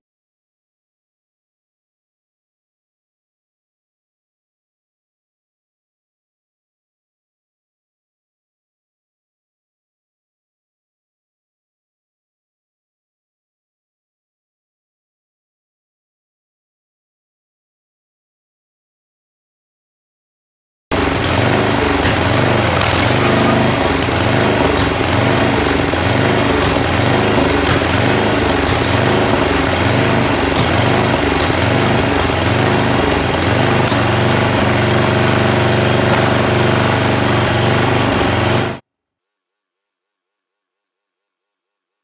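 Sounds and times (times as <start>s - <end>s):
log splitter engine running: 20.9s - 38.8s.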